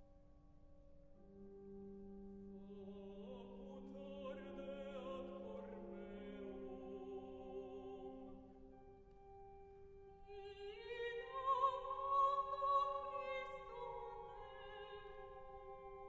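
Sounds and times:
sustained organ chord: 0:00.6 - 0:16.0
soprano singing with vibrato: 0:02.6 - 0:08.8, 0:10.2 - 0:16.0.

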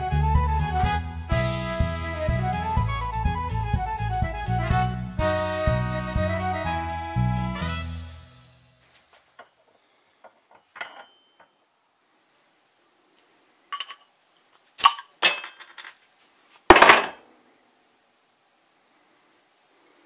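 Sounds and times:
bottle opener clinking on glass: 0:13.7 - 0:14.1
bottle cap popping off with hiss: 0:14.8 - 0:15.1.

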